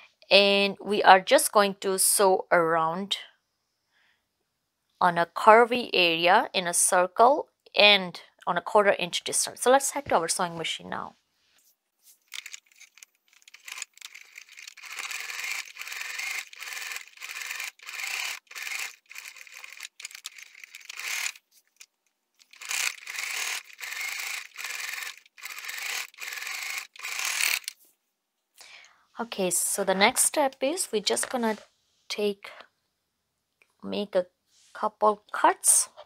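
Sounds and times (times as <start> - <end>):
electric sewing machine stitching: 12.3 - 21.4, 22.4 - 27.7.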